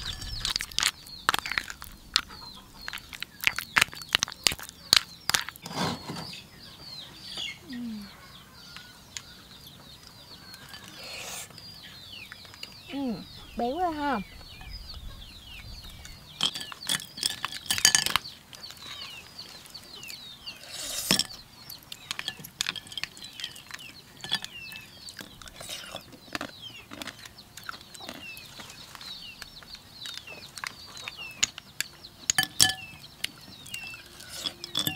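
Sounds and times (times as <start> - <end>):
birds chirping: 0.0 - 34.9
utensils clinking against dishes: 10.5 - 11.3, 16.4 - 18.4, 20.7 - 26.0, 31.1 - 34.9.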